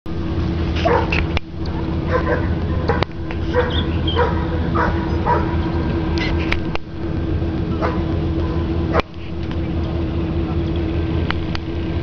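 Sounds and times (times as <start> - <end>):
steady low hum: 0.1 - 12.0
dog barking: 0.8 - 1.2, 2.1 - 5.6, 7.8 - 8.1.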